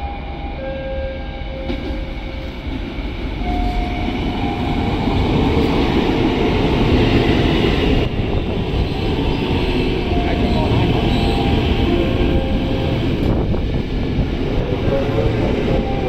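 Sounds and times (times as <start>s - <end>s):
electric train running in: 0.0s - 16.0s.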